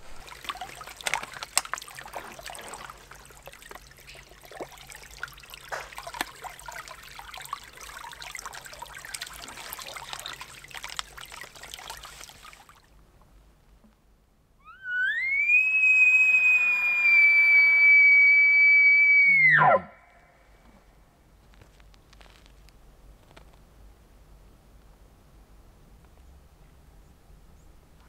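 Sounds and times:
creek trickling over rocks: 0.0s - 13.0s
water container clicks and splashes: 0.0s - 14.0s.

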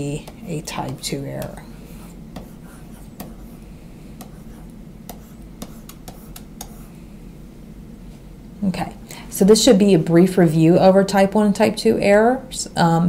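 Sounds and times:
low background hum: 0.0s - 13.0s
stylus clicking on drawing tablet: 5.1s - 6.8s.

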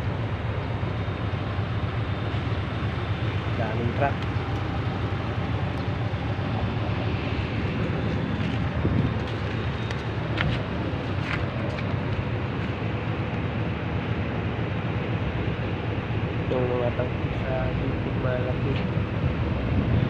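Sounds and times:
low outdoor rumble: 0.0s - 20.0s
wind buffeting microphone: 2.6s - 14.2s, 15.5s - 20.0s.

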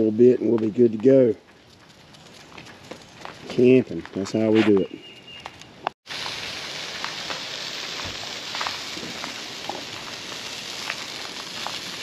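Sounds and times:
hot dogs sizzling on a grill: 6.0s - 12.0s.

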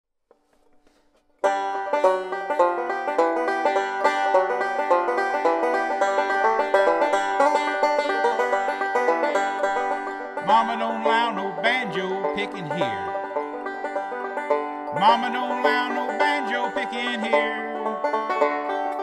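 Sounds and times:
banjo picking a tune: 0.3s - 19.0s
man singing: 10.4s - 13.2s, 14.9s - 18.0s.

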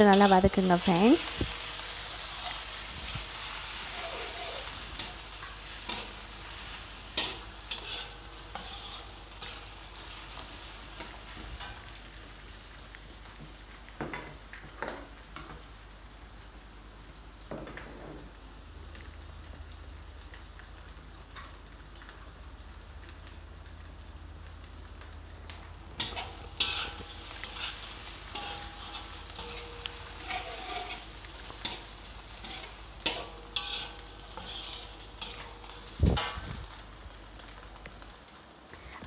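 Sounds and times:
fish balls sizzling in hot oil: 0.0s - 38.9s
spatula scraping and knocking wok: 1.2s - 10.2s, 26.0s - 36.6s.

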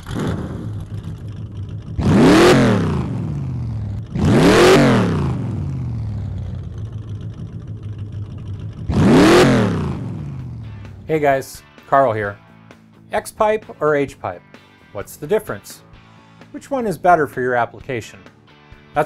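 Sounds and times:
car engine revving: 0.0s - 11.2s
car engine idling: 0.0s - 11.3s.

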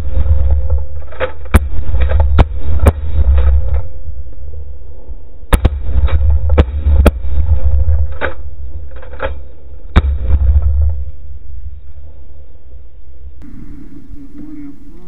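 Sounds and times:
wind rumbling on microphone: 0.0s - 1.0s
shotgun shots: 0.0s - 3.9s, 5.5s - 11.1s.

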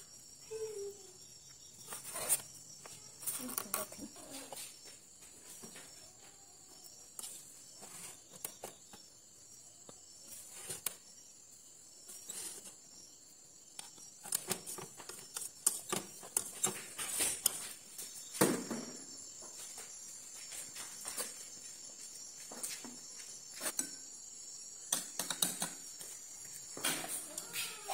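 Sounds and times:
rice paddle tapping and scraping: 13.8s - 17.8s.

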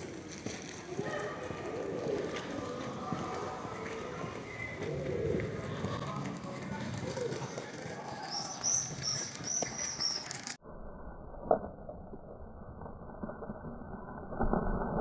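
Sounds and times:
small bird chirping: 7.4s - 10.6s.

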